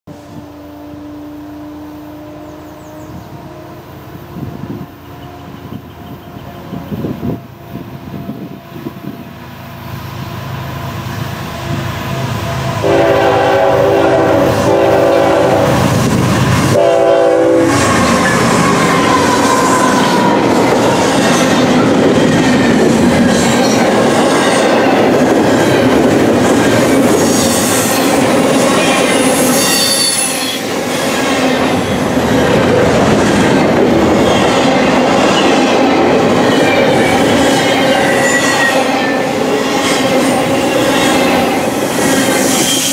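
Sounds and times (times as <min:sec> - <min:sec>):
locomotive horn blasts: 0:00.1 - 0:06.7, 0:12.8 - 0:20.5
diesel locomotive engine passing: 0:00.1 - 0:42.9
high wheel squeal: 0:17.7 - 0:22.1, 0:26.9 - 0:32.0, 0:36.4 - 0:42.9.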